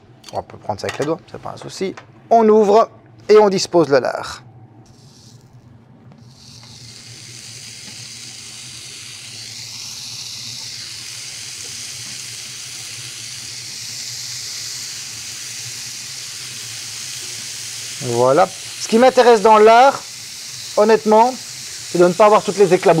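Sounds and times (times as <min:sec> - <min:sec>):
bacon sizzling on a grill: 0:06.2 - 0:23.0.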